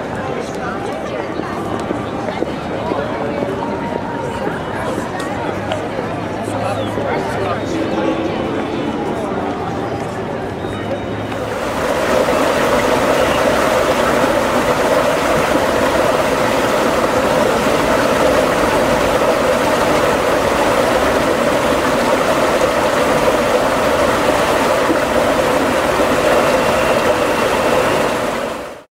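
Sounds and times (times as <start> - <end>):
water splashing over rocks: 11.3 - 28.8.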